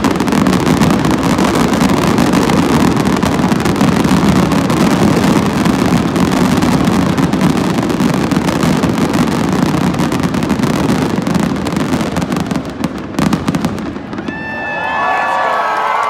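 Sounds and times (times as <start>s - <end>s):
fireworks bangs and crackling: 0.0s - 15.3s.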